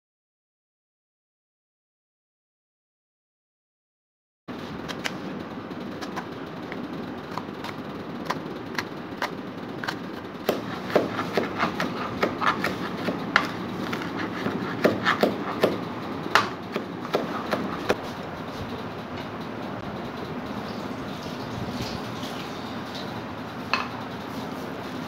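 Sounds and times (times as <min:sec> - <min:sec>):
knife chopping on cutting board: 0:08.3 - 0:15.8, 0:16.4 - 0:18.0.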